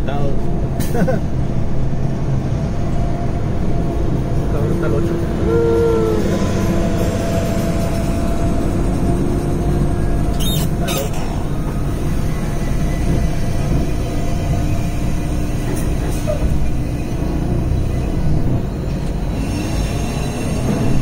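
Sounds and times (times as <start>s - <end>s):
road noise: 0.0s - 21.0s
truck engine rumble: 0.0s - 21.0s.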